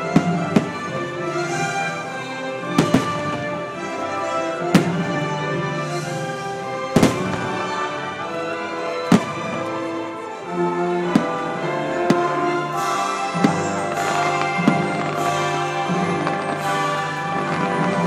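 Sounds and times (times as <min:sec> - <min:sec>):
orchestral music: 0:00.0 - 0:18.0.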